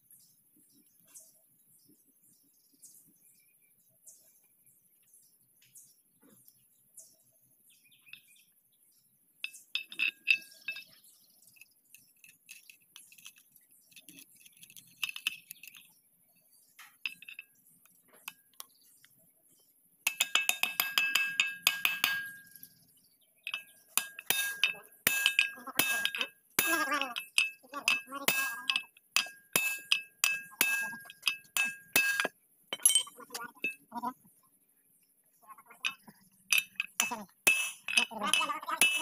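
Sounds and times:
metal tools clinking: 9.4s - 15.9s, 17.0s - 17.6s, 20.1s - 22.6s, 23.5s - 33.9s, 35.8s - 39.0s
rapid ringing metal taps: 20.0s - 22.6s, 23.5s - 33.8s, 35.9s - 39.0s.

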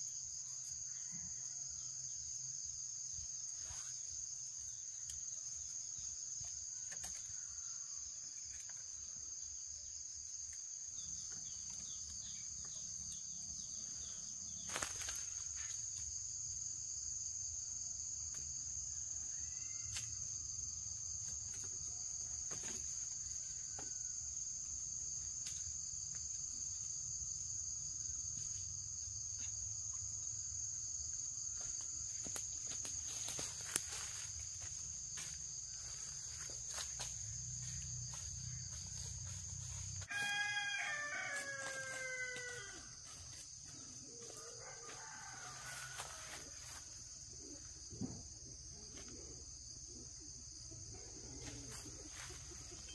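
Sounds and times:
high buzz of insects: 0.0s - 52.9s
rooster crowing: 40.0s - 43.0s, 44.1s - 46.5s.

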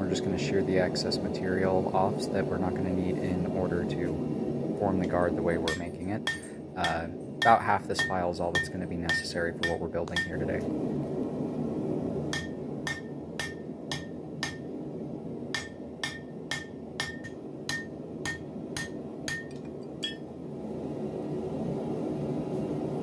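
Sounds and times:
hammer blows on hot steel: 5.1s - 10.6s, 12.3s - 14.7s.

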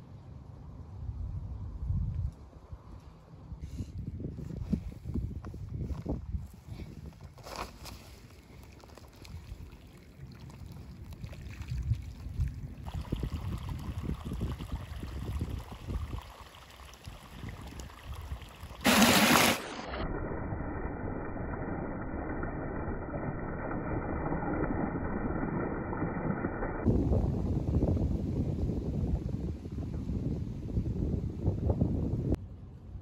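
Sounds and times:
faint outdoor wind: 0.0s - 33.0s
running water splashing over hand: 12.9s - 19.8s
loud burst of noise: 18.8s - 26.8s.

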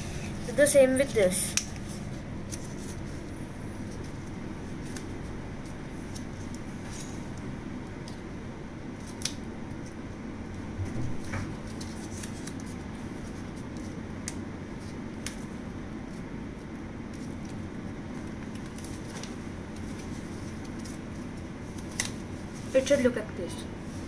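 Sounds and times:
low room hum: 0.0s - 24.0s
paper being folded and creased: 1.5s - 7.2s, 9.0s - 10.0s, 10.8s - 16.2s, 17.0s - 23.2s.

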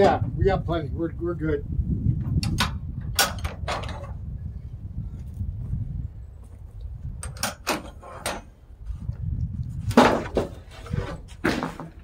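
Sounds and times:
wooden boards knocking: 9.9s - 10.7s.

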